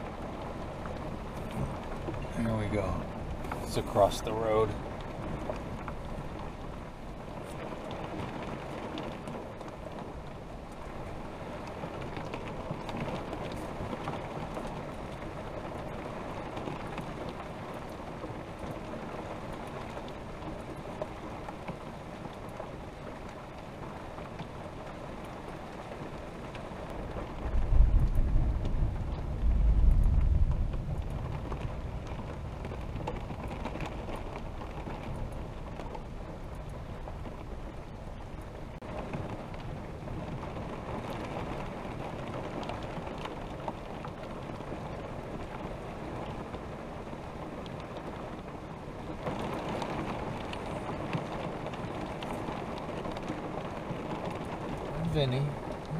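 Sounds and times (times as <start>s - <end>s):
rain on vehicle roof: 0.0s - 55.9s
thunder rumbling: 26.8s - 48.4s.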